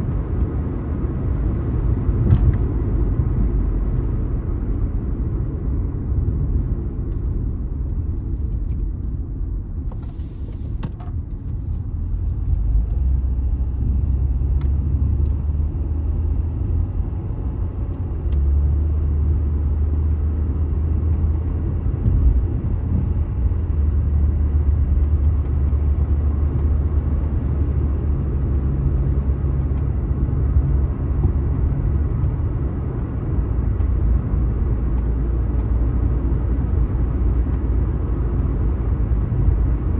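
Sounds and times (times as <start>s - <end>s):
car road noise from inside: 0.0s - 39.9s.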